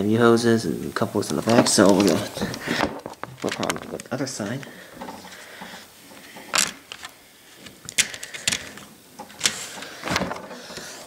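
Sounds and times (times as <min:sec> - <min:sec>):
soft rubbing: 0:00.5 - 0:07.8.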